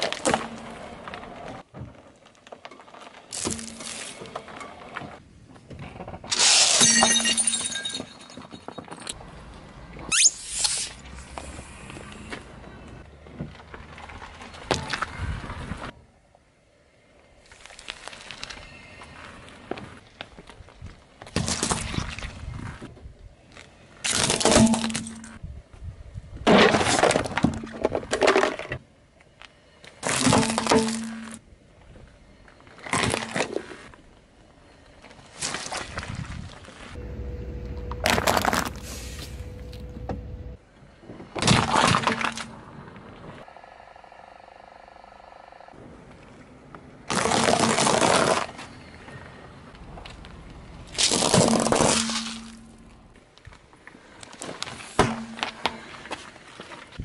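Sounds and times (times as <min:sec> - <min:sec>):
cracking and crunching: 0:37.6 - 0:39.9, 0:47.1 - 0:48.7, 0:50.0 - 0:53.6
tyre crunching candies: 0:38.0 - 0:39.8.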